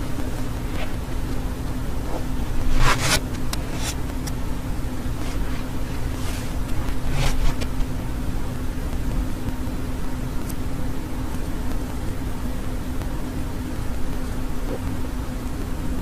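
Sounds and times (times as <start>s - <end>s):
steady low hum: 0.0s - 16.0s
short scratchy rustles: 2.0s - 4.3s, 5.1s - 7.8s.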